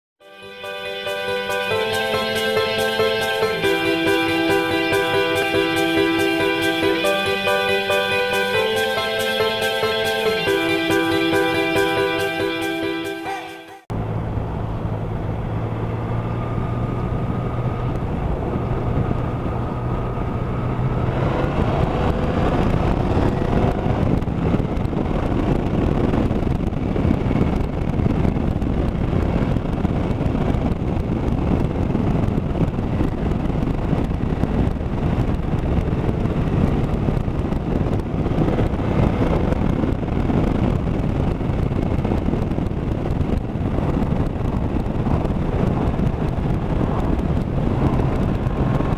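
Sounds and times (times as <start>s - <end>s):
motorcycle engine running: 14.0s - 48.9s
wind buffeting microphone: 14.0s - 48.9s.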